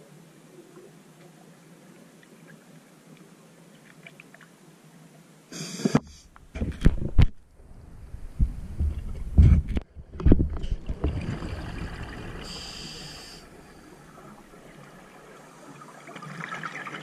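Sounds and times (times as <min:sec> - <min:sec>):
regulator inhalation hiss: 0:05.5 - 0:06.3, 0:12.4 - 0:14.0
exhaled air bubbling underwater: 0:10.8 - 0:17.0.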